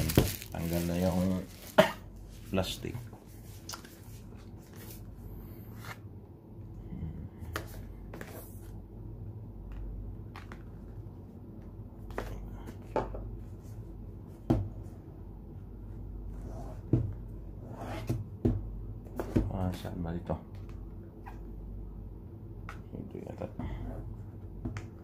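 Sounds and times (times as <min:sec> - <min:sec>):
box and packaging handling: 0:00.0 - 0:01.9
steady low hum: 0:00.0 - 0:25.0.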